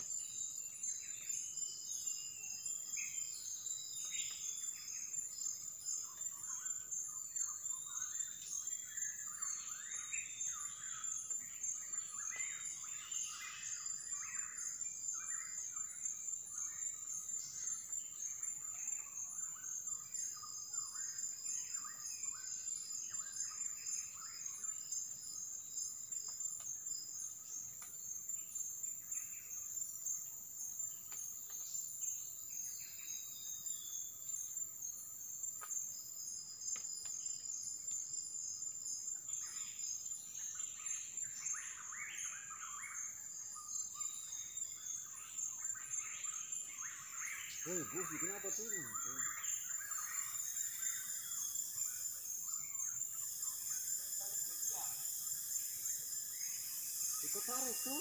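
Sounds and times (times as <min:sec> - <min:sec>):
high-pitched insect drone: 0:00.0 - 0:58.0
bird chirps and calls: 0:39.3 - 0:58.0.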